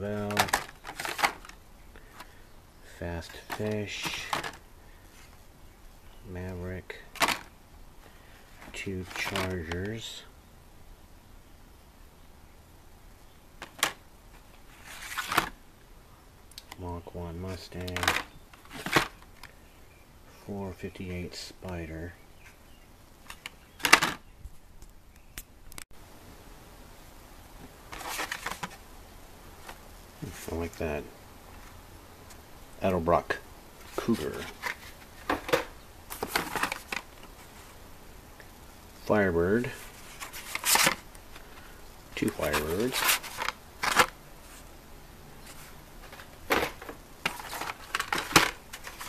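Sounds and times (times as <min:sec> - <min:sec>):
card and plastic rustling: 0:00.0 - 0:05.4, 0:06.9 - 0:10.1, 0:13.6 - 0:15.6, 0:17.5 - 0:19.5, 0:23.2 - 0:24.2, 0:27.6 - 0:28.8, 0:33.2 - 0:37.8, 0:39.5 - 0:44.7, 0:45.4 - 0:49.0.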